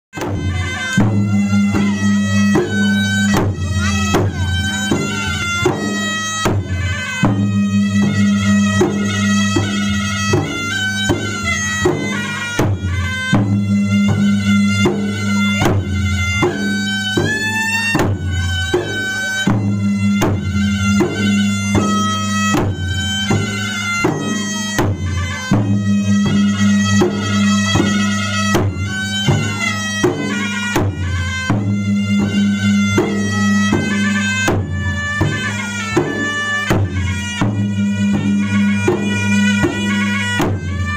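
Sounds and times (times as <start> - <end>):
drums beaten in fast rhythm: 0.1 - 40.9
reedy wind instrument melody: 0.1 - 40.9.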